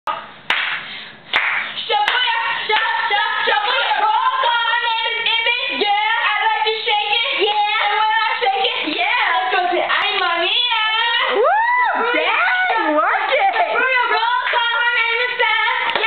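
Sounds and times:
hand clapping: 0.5s - 2.2s
voices singing: 1.9s - 16.0s.

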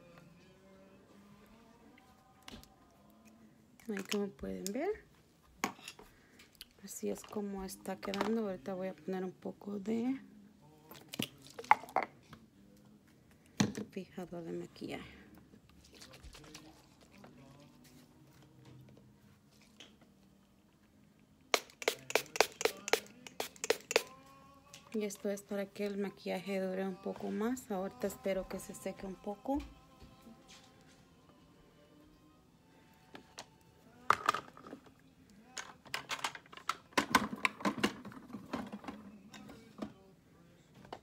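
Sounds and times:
spray bottle spritzes: 21.5s - 24.1s
clicks from handled objects: 21.5s - 24.9s.

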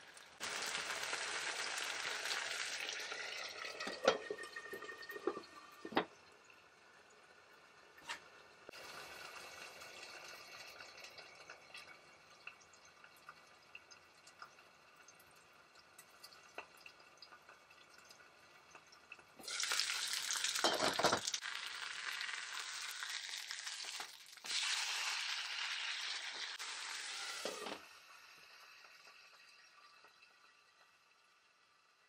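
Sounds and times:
meat sizzling in a frying pan: 0.0s - 4.2s, 8.7s - 11.0s, 19.4s - 30.1s.

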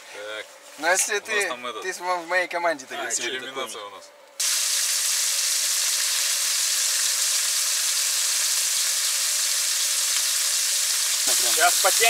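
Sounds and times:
fish sizzling in oil: 4.4s - 12.0s.

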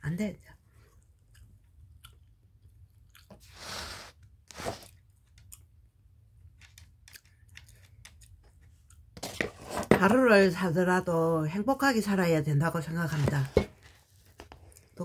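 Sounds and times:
person chewing with crunches: 0.8s - 5.8s, 6.9s - 9.2s.

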